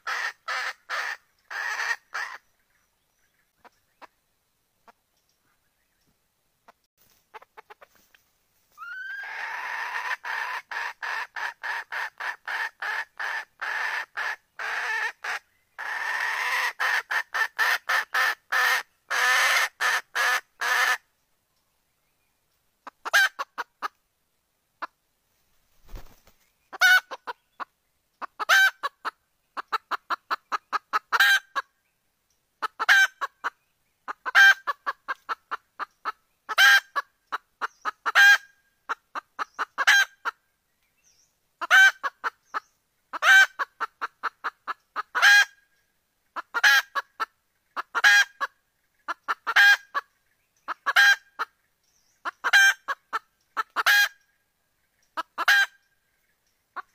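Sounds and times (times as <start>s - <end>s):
hen clucking: 0.0s - 2.5s, 6.7s - 8.1s, 8.8s - 21.0s, 22.8s - 24.0s, 25.9s - 31.7s, 32.6s - 40.4s, 41.6s - 45.6s, 46.4s - 50.1s, 50.7s - 51.6s, 52.2s - 54.3s, 55.1s - 55.8s.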